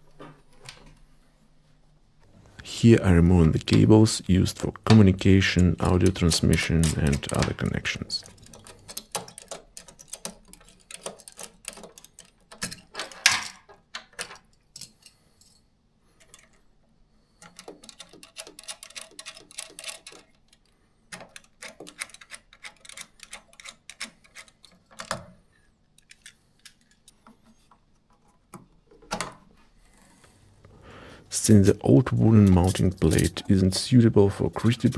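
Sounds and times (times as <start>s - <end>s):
cables rattling: 3.4s - 14.4s.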